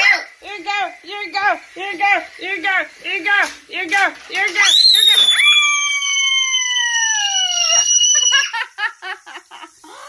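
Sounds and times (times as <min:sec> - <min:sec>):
toddler screaming: 0:04.6 - 0:08.7.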